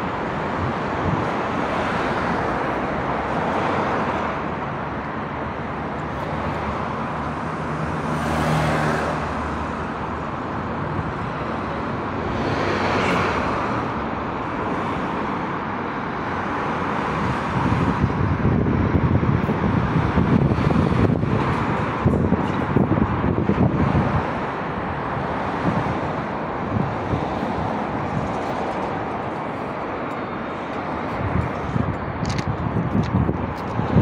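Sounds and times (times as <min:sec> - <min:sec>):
wind rumbling on microphone: 0:00.0 - 0:07.9, 0:16.4 - 0:34.0
city road traffic: 0:00.0 - 0:34.0
car passing: 0:01.0 - 0:10.2.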